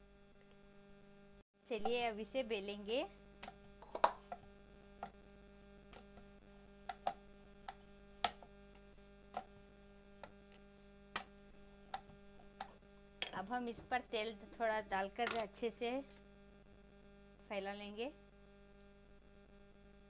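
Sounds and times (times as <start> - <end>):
low electrical hum: 0.0 - 20.0
rolling pin knocking on board: 3.4 - 5.2, 6.9 - 8.6, 9.3 - 9.6.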